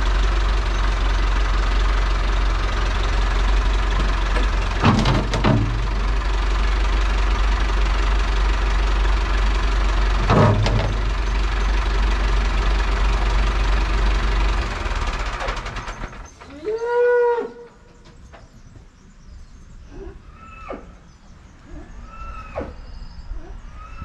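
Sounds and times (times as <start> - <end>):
tractor diesel engine running: 0.0 - 16.8.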